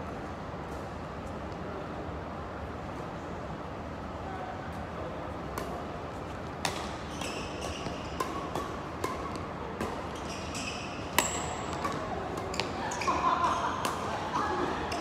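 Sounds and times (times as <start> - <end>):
rackets striking shuttlecock: 6.6 - 13.2, 13.8 - 14.2
shoes squeaking on court: 6.8 - 8.2, 10.1 - 13.2.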